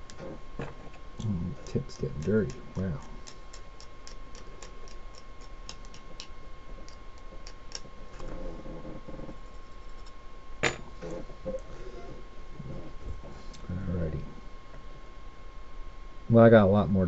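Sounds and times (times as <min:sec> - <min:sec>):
faint steady whine: 0:00.0 - 0:17.0
fast regular ticking: 0:01.0 - 0:07.9.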